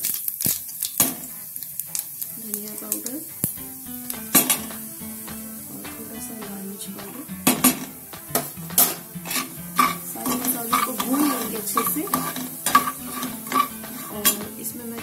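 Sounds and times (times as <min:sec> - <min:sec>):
oil sizzling and bubbling: 0:00.0 - 0:15.0
metal spatula scraping a pan: 0:01.8 - 0:05.8, 0:07.0 - 0:15.0.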